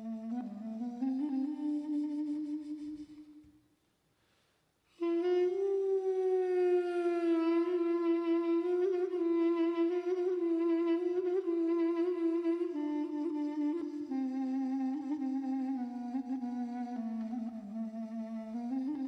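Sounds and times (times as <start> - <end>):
wooden flute held note: 0.0 - 3.6.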